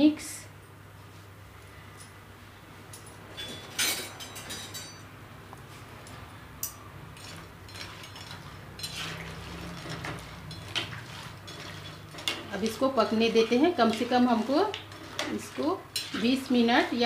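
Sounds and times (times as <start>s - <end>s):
metal spoon scraping a pan: 6.6s - 17.0s.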